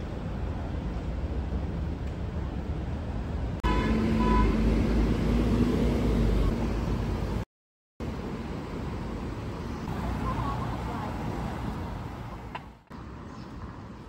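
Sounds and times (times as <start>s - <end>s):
cars and buses passing: 0.0s - 14.0s
vehicle horn toot: 3.6s - 4.7s.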